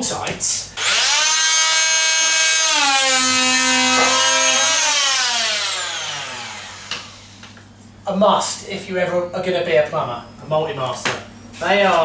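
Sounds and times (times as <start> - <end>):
oscillating multi-tool buzzing: 0.8 - 7.4.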